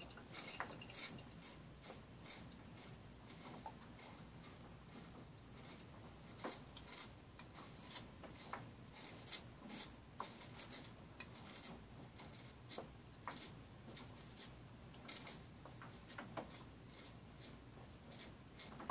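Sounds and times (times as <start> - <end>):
razor scraping stubble: 0.3 - 12.5.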